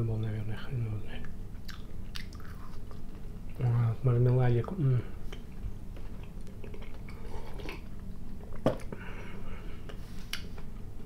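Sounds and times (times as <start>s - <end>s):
wet mouth sounds: 1.6s - 3.0s
chewing jelly candy: 1.6s - 3.2s, 6.2s - 8.0s.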